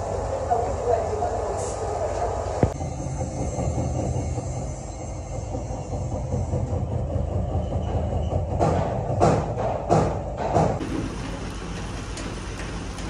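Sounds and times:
workshop machinery rumbling: 2.6 - 13.0.

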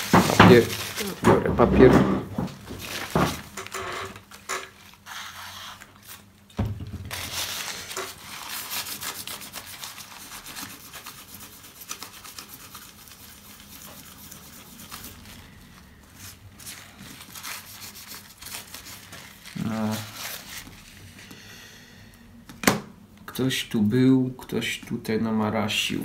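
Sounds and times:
paper towel being folded: 0.0 - 1.2, 7.1 - 21.2
paper towel scrubbing: 0.0 - 1.2, 4.7 - 6.3, 7.1 - 21.2.

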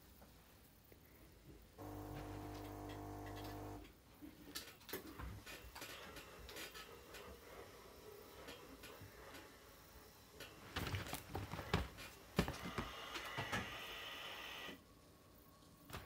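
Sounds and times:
steady hum of even tones: 1.8 - 3.9.

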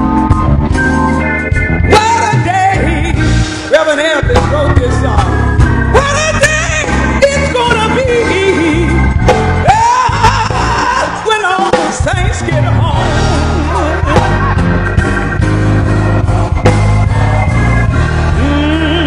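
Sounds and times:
organ and band accompaniment: 0.0 - 19.0
woman singing gospel: 1.9 - 5.3, 5.9 - 14.7, 18.3 - 19.0.

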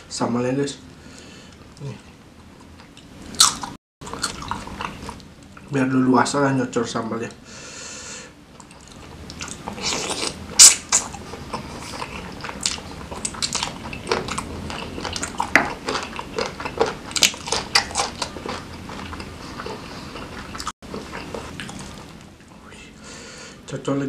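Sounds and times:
wet chewing sounds: 8.6 - 22.3.

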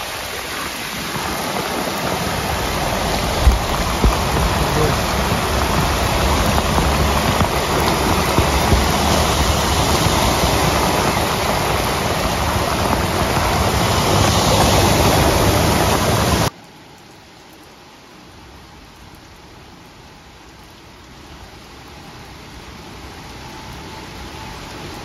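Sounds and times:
cars driving through floodwater: 0.0 - 17.1
heavy rain: 0.0 - 25.0.

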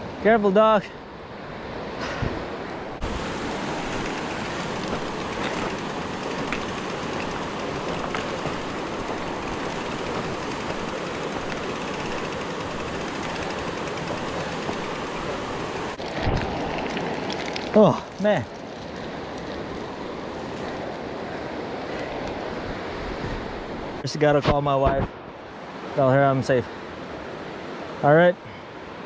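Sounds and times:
rush of air and ground noise: 1.0 - 17.8
mountain bike rattling: 3.1 - 17.7.

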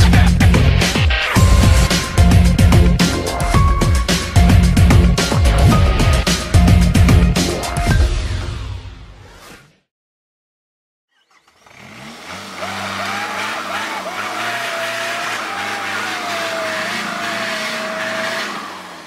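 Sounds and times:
vehicle engine running: 11.5 - 19.0.

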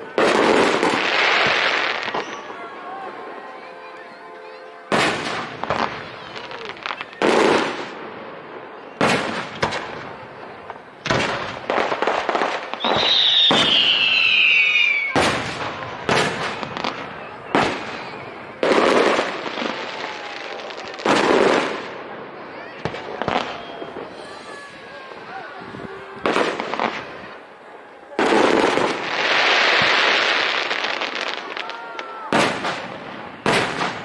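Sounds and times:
fireworks crackling: 0.0 - 34.0
whistling firework shell: 12.7 - 19.3, 22.8 - 24.6.

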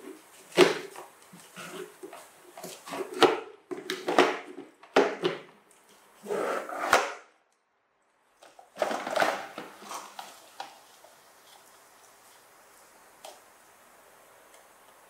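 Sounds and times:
toy truck knocking and scraping on floor: 8.7 - 10.8.

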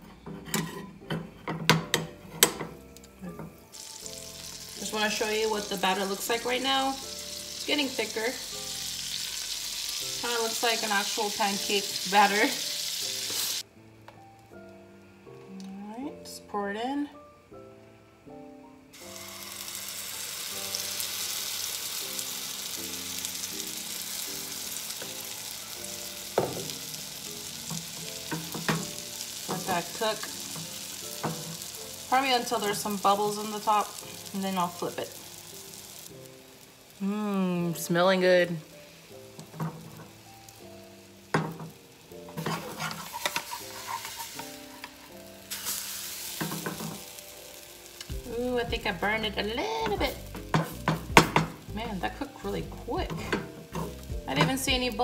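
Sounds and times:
pancake batter sizzling: 2.8 - 13.7, 18.9 - 55.0
spatula clicking and scraping: 42.3 - 45.2.

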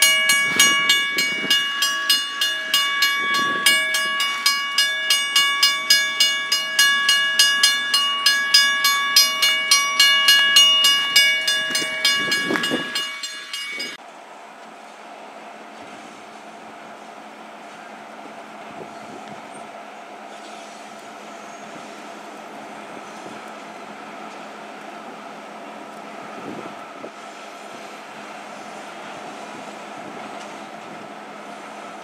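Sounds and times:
railroad crossing bell ringing: 0.0 - 14.0.

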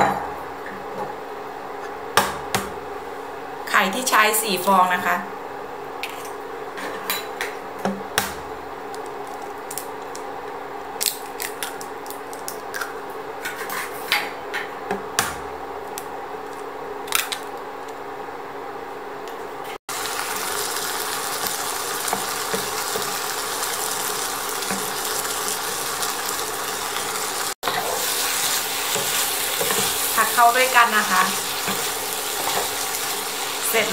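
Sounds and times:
low hum from pan: 0.0 - 33.9
egg sizzling in a pan: 19.9 - 33.9.

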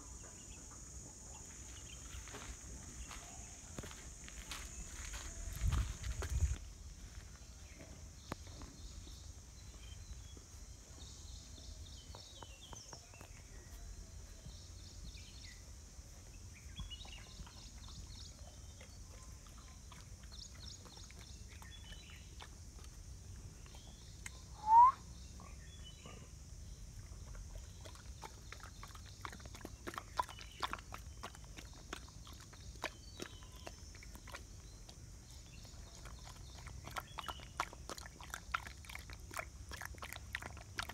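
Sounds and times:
dog lapping and chewing: 17.3 - 24.0, 27.0 - 40.9
short loud rising chirp: 24.6 - 25.0.

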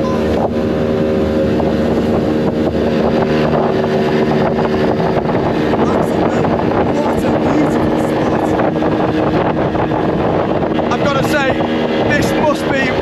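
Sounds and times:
motorboat engine drone: 0.0 - 13.0
rushing water and wind: 0.0 - 13.0.

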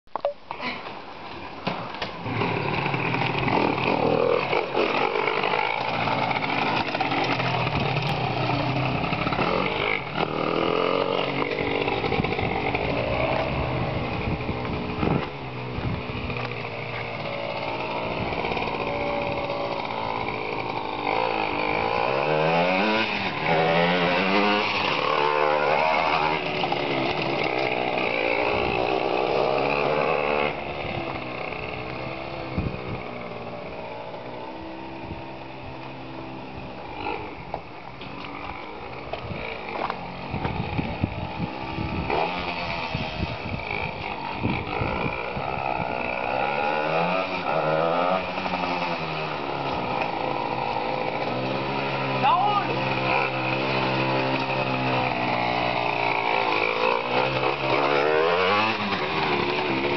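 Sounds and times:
two-stroke engine revving: 2.2 - 59.9.

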